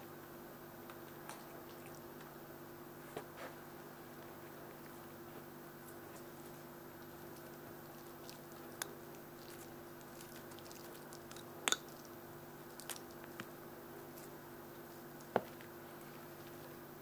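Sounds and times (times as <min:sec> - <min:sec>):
cat chewing stick crunches: 0:05.8 - 0:16.8.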